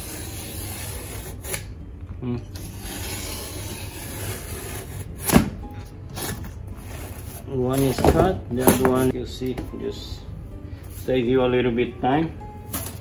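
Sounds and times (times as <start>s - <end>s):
knife scraping through ceiling tiles: 0.0s - 1.7s, 2.6s - 5.1s.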